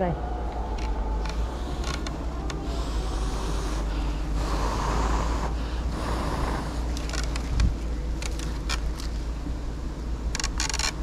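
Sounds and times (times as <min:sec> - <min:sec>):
wind buffeting microphone: 0:00.0 - 0:11.0
sharp clicks and scrapes: 0:06.9 - 0:09.2, 0:10.3 - 0:11.0.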